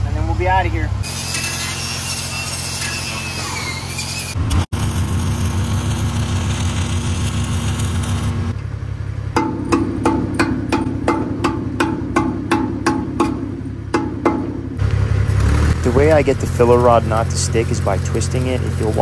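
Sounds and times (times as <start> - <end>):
welding arc crackling: 1.0 - 8.6, 15.3 - 19.0
chipping hammer striking metal: 9.4 - 14.8.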